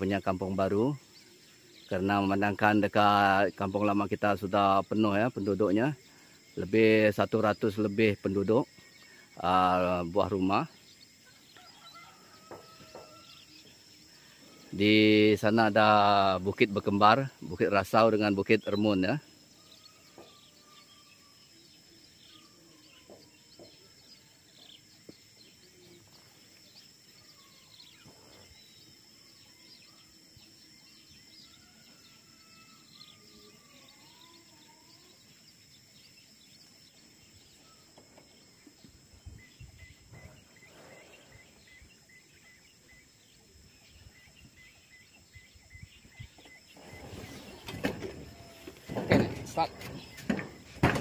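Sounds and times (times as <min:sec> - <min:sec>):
birds calling with gliding whistles: 0:00.0 - 0:51.0
high insect drone: 0:00.0 - 0:51.0
low rustles: 0:46.7 - 0:51.0.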